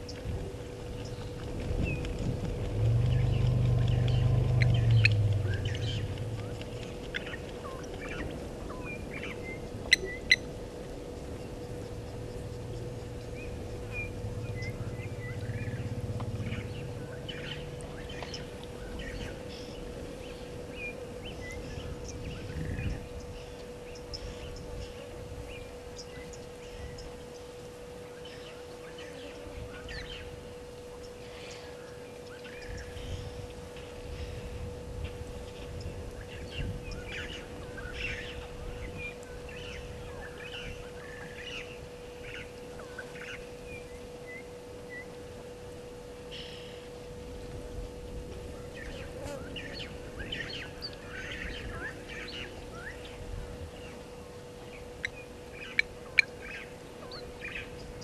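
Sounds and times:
low rumble: 0.0s - 28.8s
birds chirping: 0.0s - 45.2s, 48.4s - 58.0s
faint steady hum: 0.0s - 58.0s.

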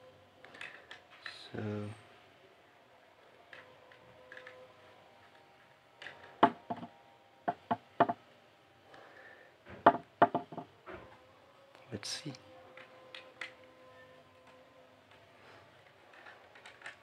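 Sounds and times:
plastic clicks and knocks: 6.0s - 6.9s, 7.5s - 8.2s, 9.9s - 10.7s.

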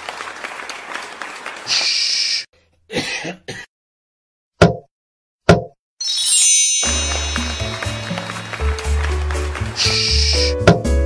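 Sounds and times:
cartoon hiss: 9.8s - 10.5s.

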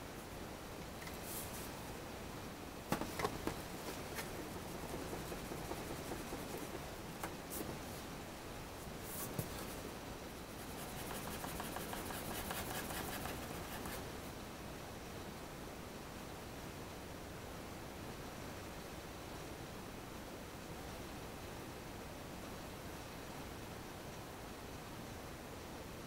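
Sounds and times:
objects knocking on desk: 2.9s - 3.6s
pencil scratching on paper: 4.2s - 6.9s, 10.6s - 14.0s.

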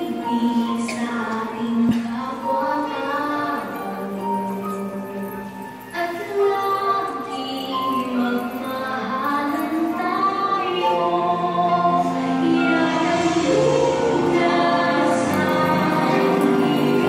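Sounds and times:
choir singing held notes: 10.4s - 17.0s.

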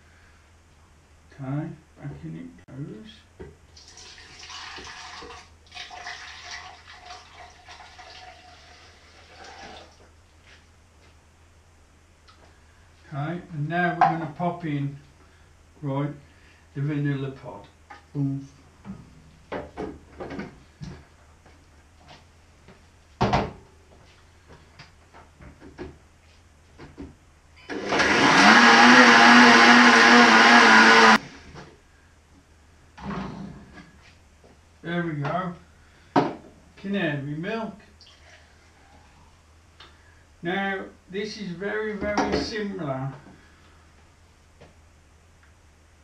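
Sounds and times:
liquid pouring into blender jar: 3.8s - 9.9s.

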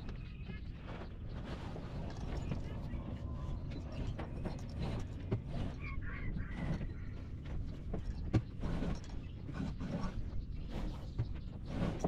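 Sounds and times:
wind noise rumble: 0.0s - 12.0s.

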